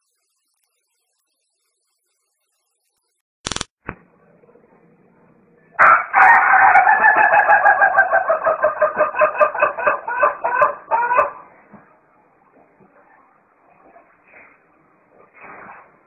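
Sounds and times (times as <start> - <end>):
rooster crowing: 5.8 - 11.5.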